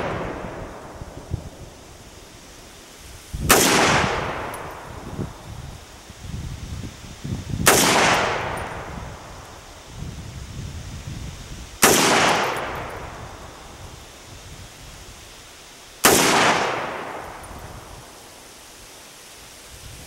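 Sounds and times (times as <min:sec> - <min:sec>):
rifle shots: 0:00.0 - 0:01.0, 0:03.5 - 0:04.6, 0:07.7 - 0:08.6, 0:11.8 - 0:12.9, 0:16.0 - 0:17.2
rolling echo: 0:00.0 - 0:01.8.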